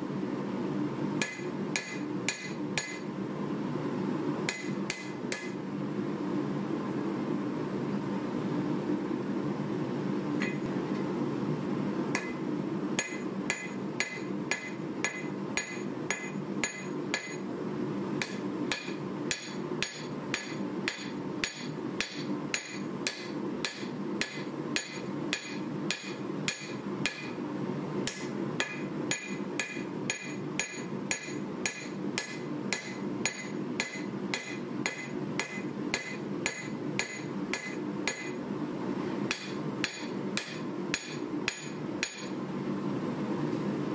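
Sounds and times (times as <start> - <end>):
steady hum: 0.0 - 43.9
hammer striking metal on anvil: 1.2 - 3.1, 4.5 - 5.6, 10.4 - 10.6, 12.1 - 12.4, 13.0 - 17.4, 18.2 - 27.4, 28.0 - 38.4, 39.3 - 42.4.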